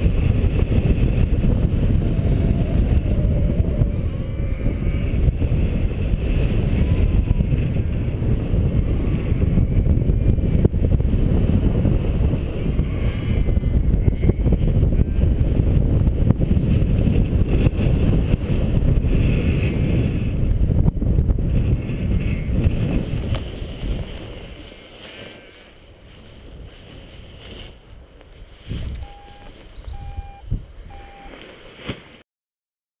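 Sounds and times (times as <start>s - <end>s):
wind buffeting microphone: 0.0s - 31.3s
short electronic beeps: 29.0s - 31.4s.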